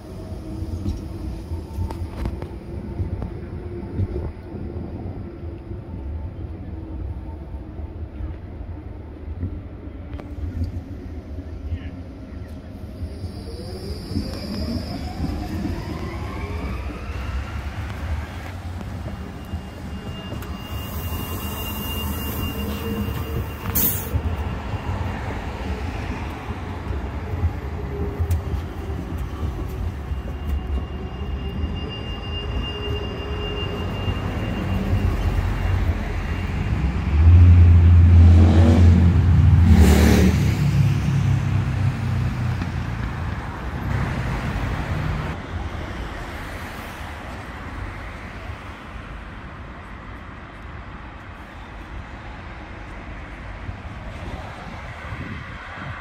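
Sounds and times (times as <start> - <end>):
tram motor whine: 0.0 - 39.6
heavy tram rumble: 0.0 - 56.0
faint high squeal: 12.8 - 26.2, 28.5 - 37.0.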